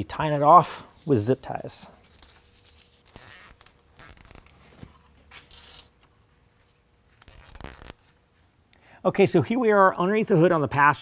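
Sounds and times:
zip ties ratcheting tight: 0:03.1 - 0:04.5, 0:07.2 - 0:08.0.

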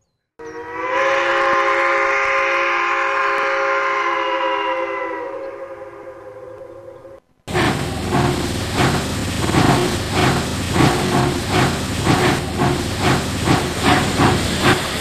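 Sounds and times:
train horn blast: 0:00.4 - 0:06.9.

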